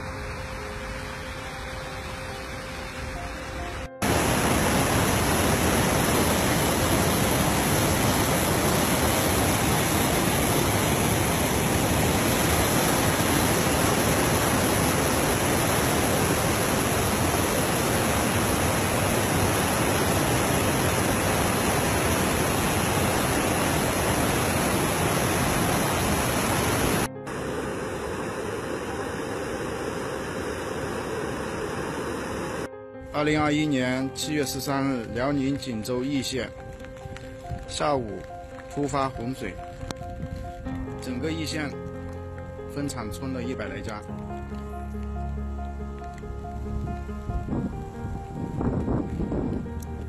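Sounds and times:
river water rushing through rapids: 0.0s - 32.7s.

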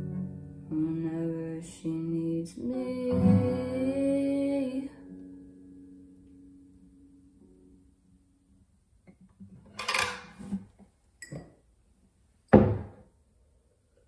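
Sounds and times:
acoustic guitar chord ringing: 2.7s - 8.4s.

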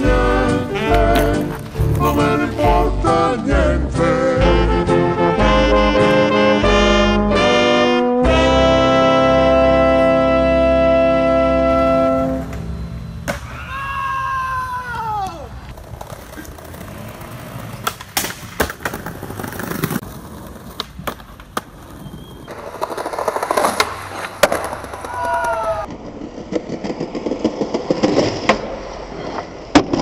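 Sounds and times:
skateboard wheels rolling on concrete: 0.0s - 30.0s
skateboard clacking on ground: 0.8s - 2.4s, 15.1s - 30.0s.

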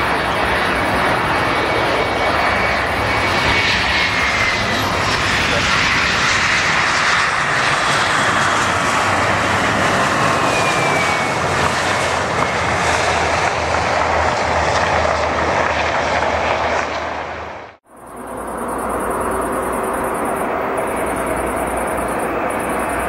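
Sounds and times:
jet engines roaring on landing: 0.0s - 23.0s.

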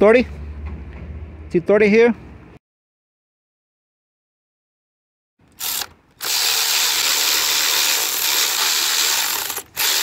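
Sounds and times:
electric ratchet motor whirring: 5.5s - 10.0s.

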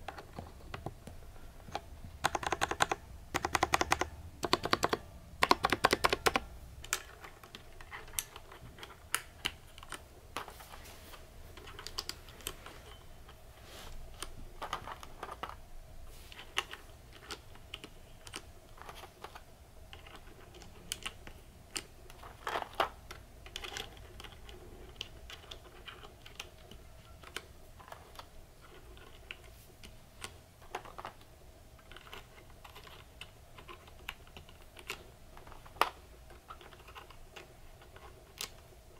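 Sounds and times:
keycaps clicking onto switches: 0.0s - 10.5s
mechanical keyboard key presses: 1.7s - 10.0s.

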